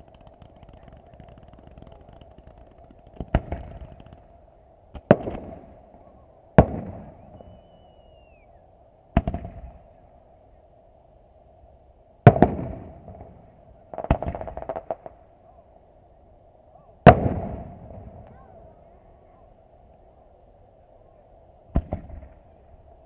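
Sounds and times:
firework shells bursting: 0.0s - 5.8s, 12.3s - 15.3s, 21.7s - 22.5s.

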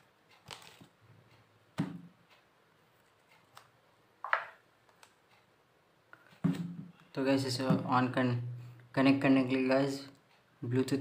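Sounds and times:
smartphone being handled: 0.4s - 1.0s.

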